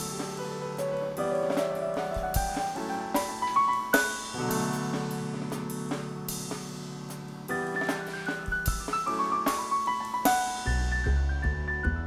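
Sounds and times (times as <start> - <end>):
piano and drums music: 0.0 - 12.0.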